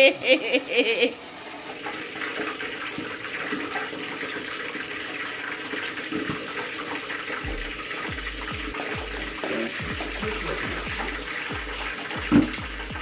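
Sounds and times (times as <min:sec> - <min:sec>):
gas stove cooking hiss: 0:00.0 - 0:13.0
electronic music with bass beat: 0:07.4 - 0:13.0.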